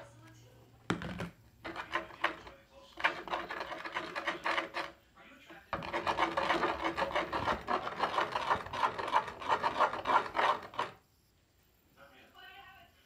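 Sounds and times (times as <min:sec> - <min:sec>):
spoon scraping a dish: 0:01.6 - 0:11.0.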